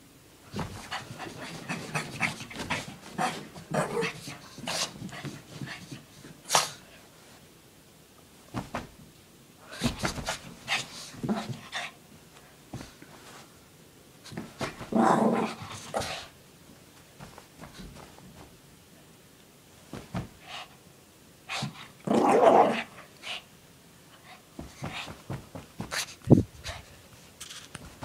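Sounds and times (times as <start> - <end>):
dog panting and snuffling: 0.6 - 6.8, 24.2 - 27.0.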